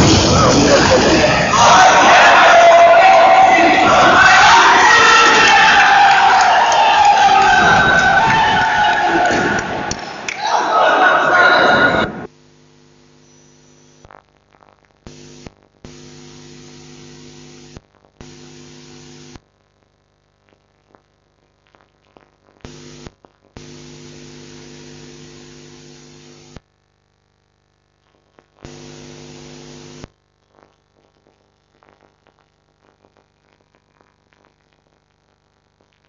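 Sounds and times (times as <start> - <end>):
electrical mains hum: 0.0 - 36.0
tape hiss: 12.0 - 36.0.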